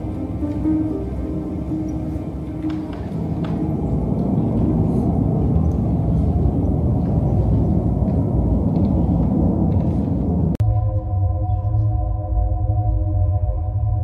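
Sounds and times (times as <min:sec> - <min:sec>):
low electronic drone: 0:00.0 - 0:14.0.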